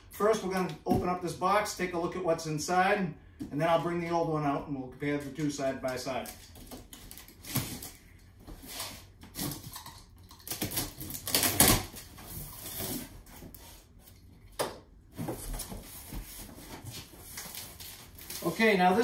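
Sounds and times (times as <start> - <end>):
cardboard rustling and scraping: 11.2 - 14.2, 15.1 - 19.0.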